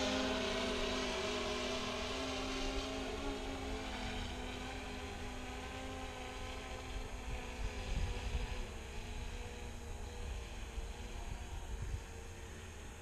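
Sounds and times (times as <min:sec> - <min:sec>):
drone propellers whining: 0:00.0 - 0:13.0
wind rumbling on microphone: 0:06.0 - 0:13.0.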